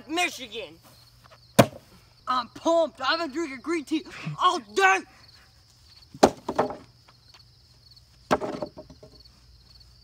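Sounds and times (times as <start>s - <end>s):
crickets chirping: 0.0s - 10.0s
wooden boards clattering: 6.1s - 6.9s, 8.3s - 9.2s.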